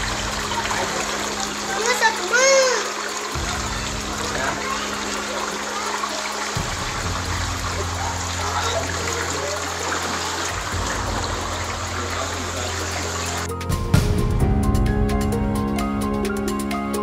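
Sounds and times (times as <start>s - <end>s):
floodwater rushing: 0.0s - 13.5s.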